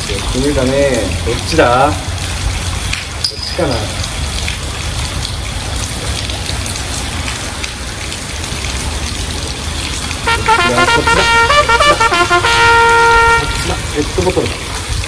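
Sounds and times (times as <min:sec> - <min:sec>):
heavy rain hissing: 0:06.4 - 0:15.0.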